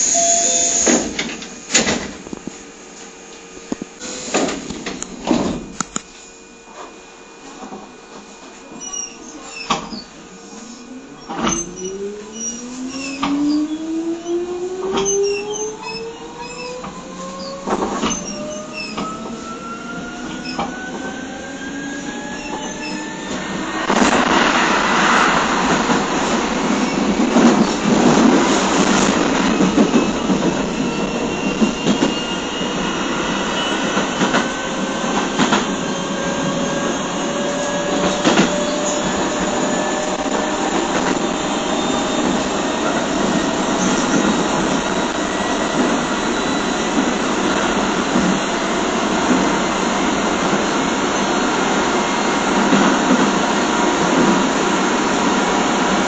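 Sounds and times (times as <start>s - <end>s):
train traction motor whine: 0.0s - 56.0s
wheel and rail rumble: 8.8s - 56.0s.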